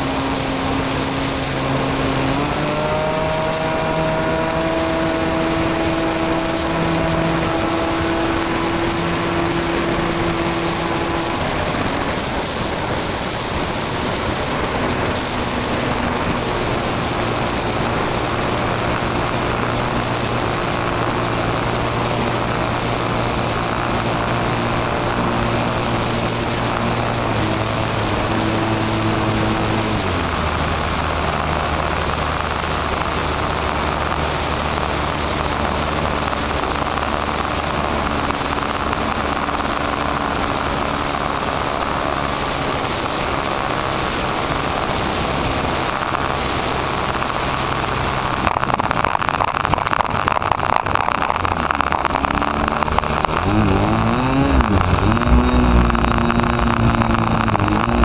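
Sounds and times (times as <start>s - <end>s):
model airplane motor and propeller: 0.0s - 58.0s
wind rush: 0.0s - 58.0s.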